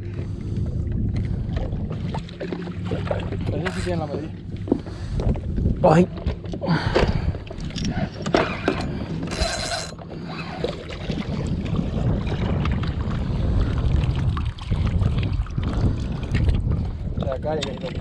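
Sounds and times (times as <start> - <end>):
wind rumble on microphone: 0.0 - 18.0
fishing reel clicking: 9.3 - 10.0.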